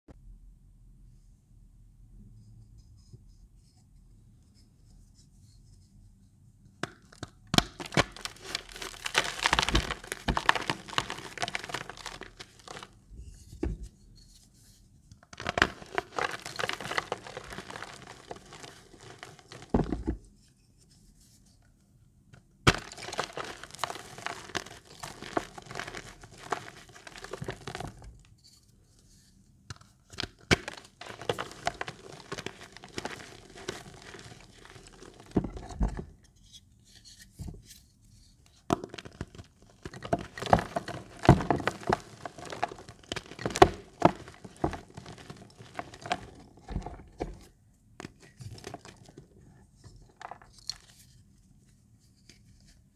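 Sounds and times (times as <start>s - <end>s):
chalk crumbling and crackling: 7.6s - 13.5s, 15.4s - 20.0s, 22.7s - 28.3s, 30.2s - 35.8s, 38.8s - 51.3s.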